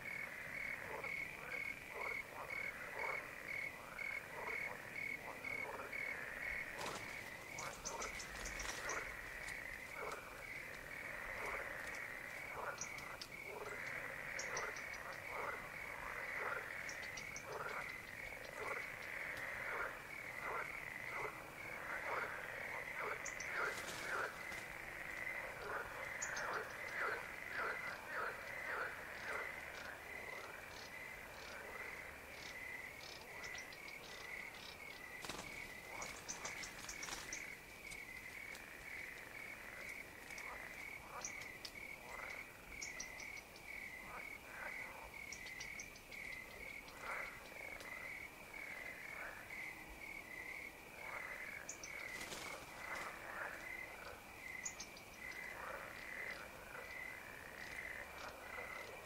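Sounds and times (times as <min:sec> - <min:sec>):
crickets chirping: 0:00.0 - 0:59.0
frogs calling: 0:00.0 - 0:59.0.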